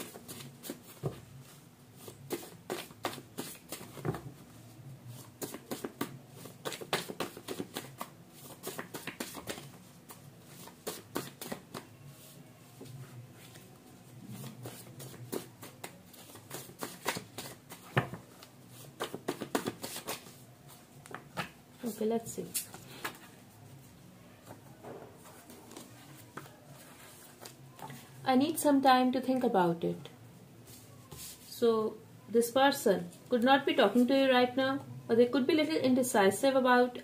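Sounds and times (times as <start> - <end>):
cards being shuffled: 5.2 - 11.9, 14.4 - 21.6.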